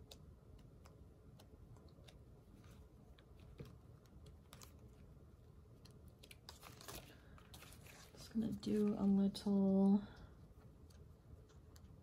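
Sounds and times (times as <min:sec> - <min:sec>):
stickers and paper clicking: 0:00.0 - 0:05.1.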